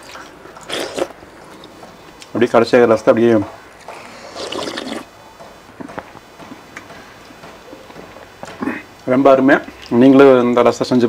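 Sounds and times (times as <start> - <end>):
soft eating clicks and smacks: 0.0 - 2.4, 5.8 - 10.2.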